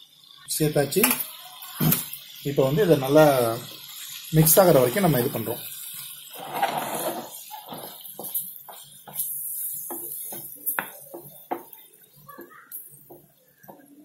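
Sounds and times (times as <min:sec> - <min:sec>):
spatula scraping a frying pan: 0:06.3 - 0:11.8.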